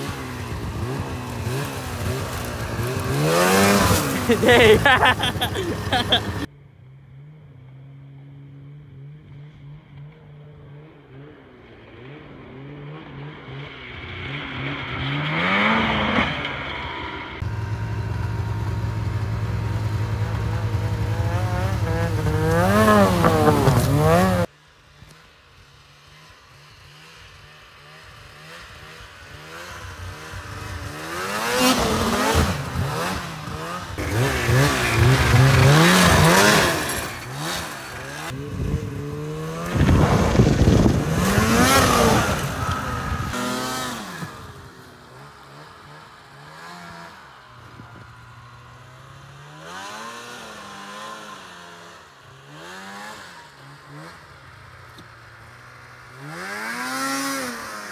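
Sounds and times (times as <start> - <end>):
snowmobile engines revving: 0.0 - 6.5, 7.2 - 57.9.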